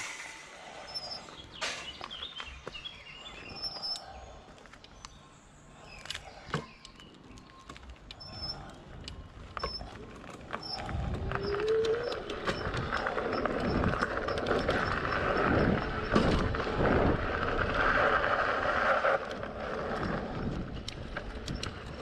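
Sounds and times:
bike tyres rumbling: 5.9s - 22.0s
bike knocking and rattling: 9.4s - 22.0s.

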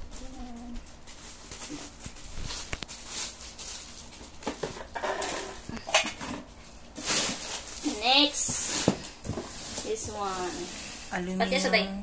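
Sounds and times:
plastic bag crinkling: 0.1s - 5.7s, 7.0s - 8.9s.

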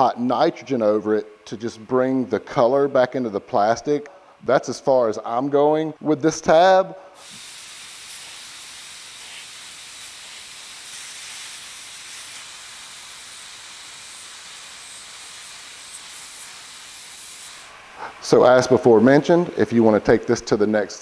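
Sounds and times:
hiss of hot gas from nozzle: 7.2s - 18.3s.

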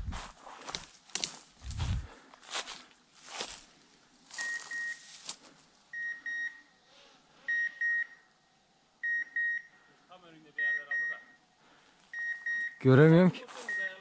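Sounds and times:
soft scuffs: 0.0s - 3.7s
electronic beeper beeping: 13.6s - 14.0s.

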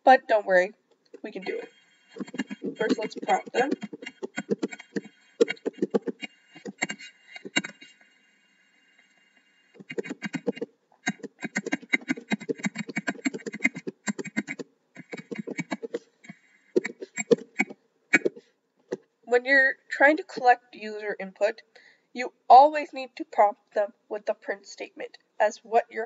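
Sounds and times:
rapid keyboard typing: 1.4s - 7.9s, 9.8s - 18.4s.

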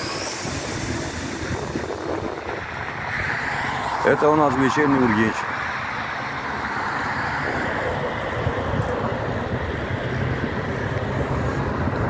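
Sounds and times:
traffic hiss: 0.0s - 6.4s
low traffic rumble: 0.0s - 12.0s.

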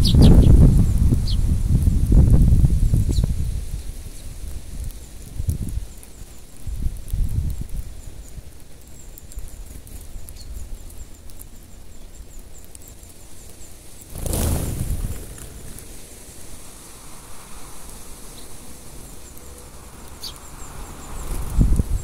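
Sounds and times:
sparrows chirping: 0.0s - 1.5s, 7.7s - 22.0s
rush of wings: 14.0s - 22.0s.

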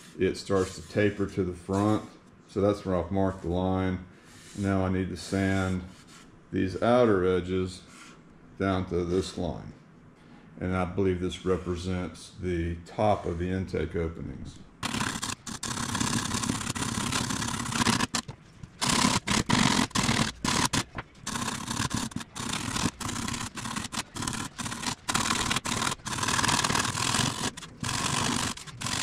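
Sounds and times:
wood rasp scraping foam: 14.8s - 29.0s.

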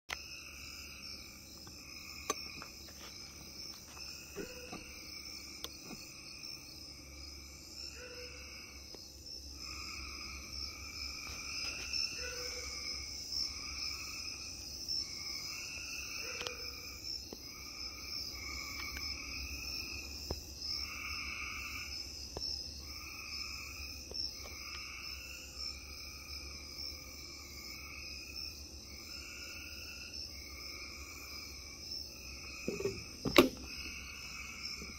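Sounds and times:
insects trilling: 0.1s - 34.9s.

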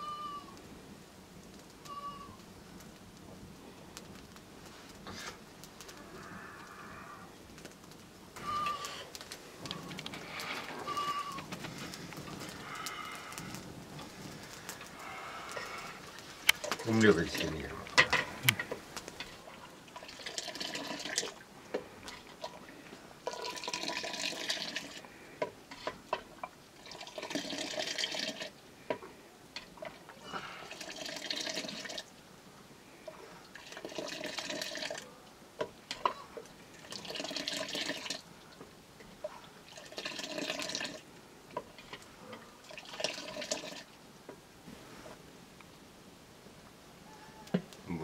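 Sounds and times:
milk pouring and splashing: 19.2s - 25.0s, 25.7s - 28.6s, 30.6s - 32.1s, 33.1s - 35.0s, 36.0s - 38.3s, 39.2s - 41.1s, 42.6s - 43.9s.

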